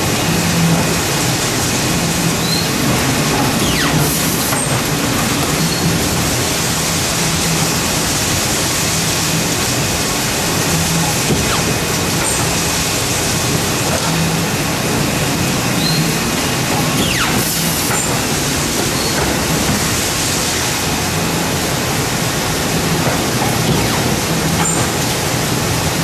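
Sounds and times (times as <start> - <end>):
paper-cutting machine running: 0.0 - 26.0.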